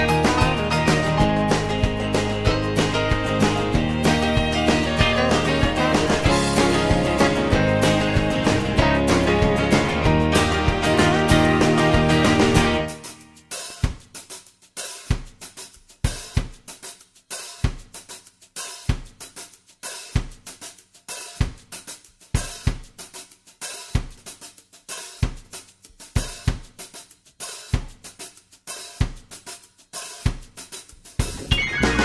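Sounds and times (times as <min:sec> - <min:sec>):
hi-hat and cymbal strokes: 0:12.8 - 0:32.0
kick drum beat: 0:13.8 - 0:14.1, 0:15.1 - 0:15.4, 0:16.0 - 0:16.7, 0:17.6 - 0:18.0, 0:18.9 - 0:19.2, 0:21.4 - 0:21.7, 0:22.4 - 0:23.0, 0:25.2 - 0:25.5, 0:26.2 - 0:26.8, 0:27.8 - 0:28.0.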